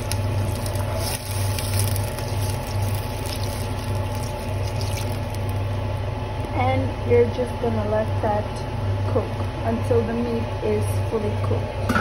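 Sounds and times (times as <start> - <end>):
water splashing into hot fat: 0.0 - 5.8
water pouring from jug: 0.5 - 5.6.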